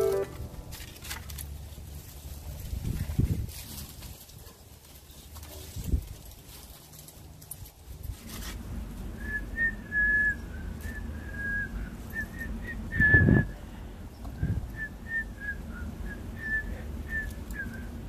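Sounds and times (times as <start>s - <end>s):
person whistling high notes: 0.0s - 0.4s.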